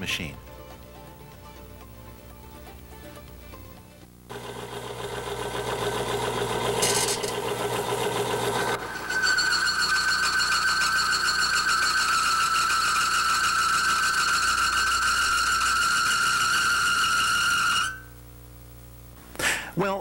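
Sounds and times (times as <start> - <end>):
machine grinding: 4.3 - 18.0
metal-on-metal squeal: 8.8 - 18.1.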